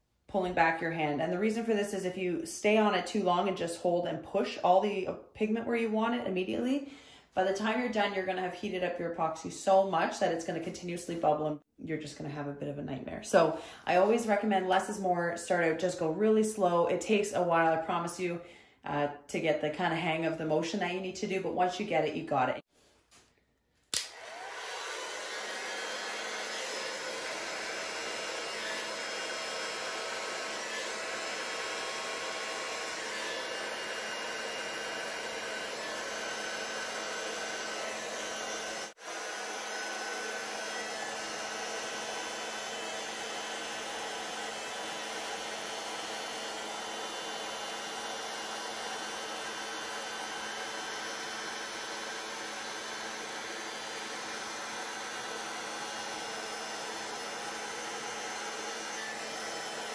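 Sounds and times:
heat gun blowing air: 23.9 - 59.9.

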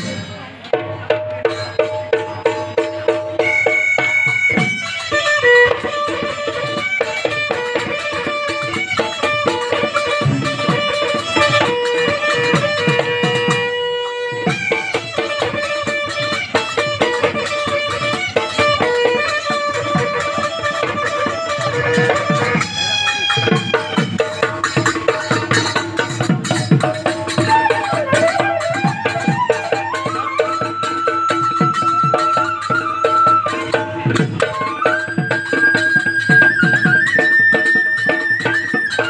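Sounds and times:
fast drumming: 0.0 - 39.0
horn pipe playing reedy melody: 3.4 - 24.5, 27.3 - 34.0.

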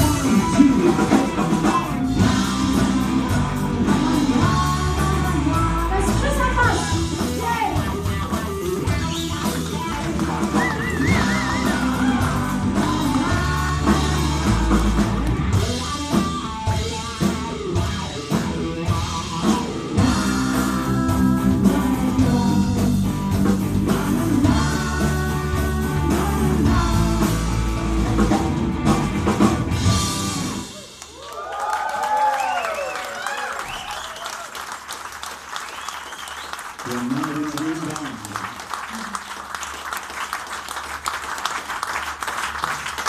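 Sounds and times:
electric bass: 0.0 - 31.0
electric guitar: 0.0 - 31.2
drum kit: 0.0 - 34.0
woman singing: 2.4 - 9.1, 10.8 - 15.0, 20.0 - 23.0, 23.9 - 27.7
audience applauding: 7.7 - 15.6, 30.6 - 43.0.

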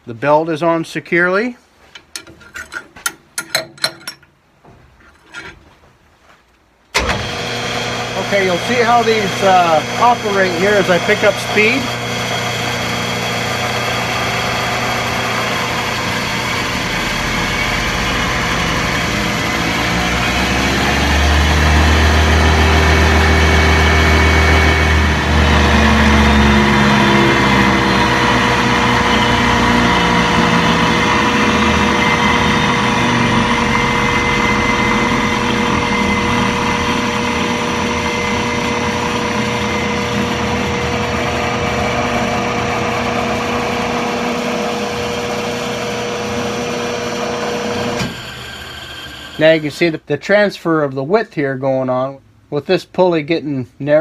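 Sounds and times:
wood lathe running: 7.0 - 50.0.

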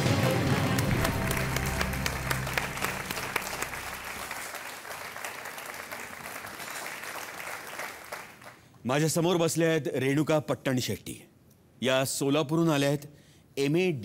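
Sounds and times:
show music: 0.0 - 4.6
studio audience applauding: 0.0 - 8.8.

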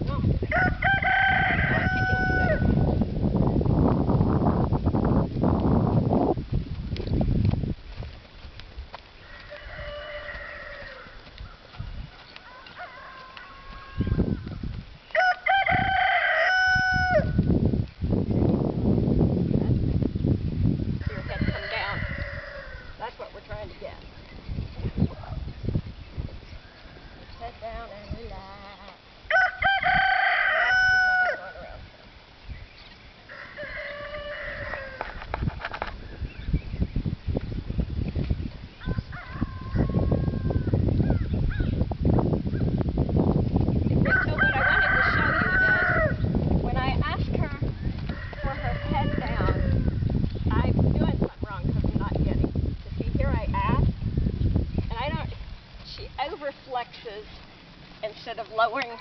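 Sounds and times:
rooster crowing: 0.5 - 2.8, 9.2 - 11.6, 12.4 - 14.4, 15.1 - 17.4, 21.0 - 23.0, 29.3 - 31.7, 33.3 - 35.2, 38.8 - 41.3, 44.0 - 46.3, 48.0 - 50.1.

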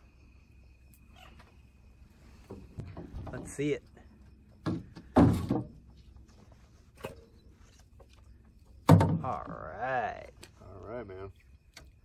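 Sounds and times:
knocks and bumps in a canoe: 4.6 - 6.0, 8.7 - 9.6.

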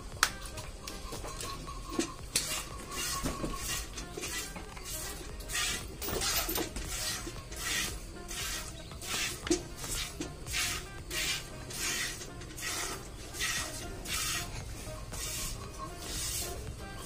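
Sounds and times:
milk squirting into metal bucket: 1.4 - 14.5.

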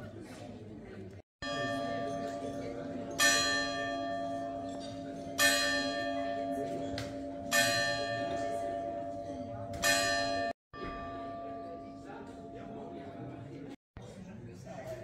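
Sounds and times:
church bell tolling: 1.4 - 13.4.

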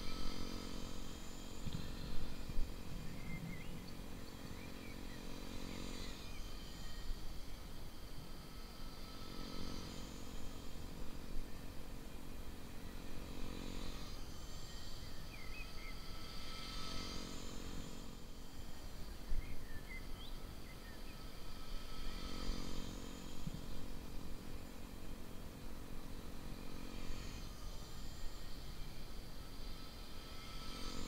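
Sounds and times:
model helicopter rotors whining: 0.0 - 31.0
bird chirps: 3.0 - 5.2.

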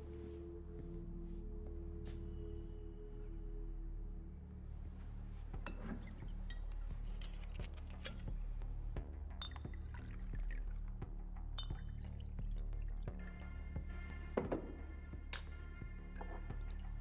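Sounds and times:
glassware clinking: 11.6 - 12.0.

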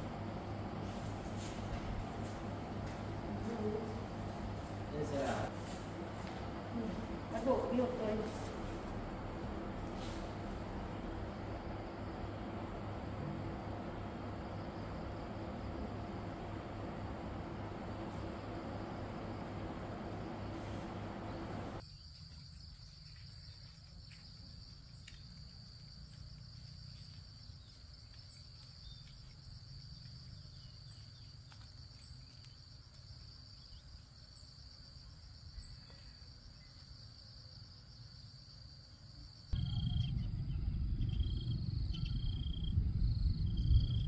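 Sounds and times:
insect chorus: 0.0 - 44.0
low rushing noise: 39.6 - 44.0.

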